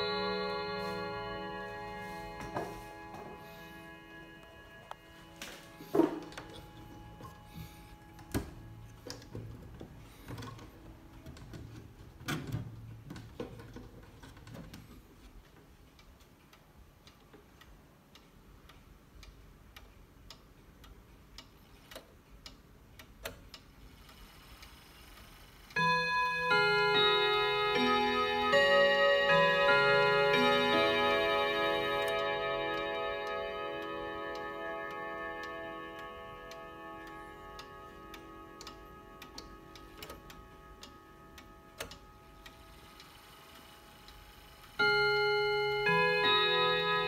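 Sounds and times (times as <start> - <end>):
clock chime melody: 0.0 - 9.1, 25.8 - 47.0
wall clock ticking: 0.0 - 47.0.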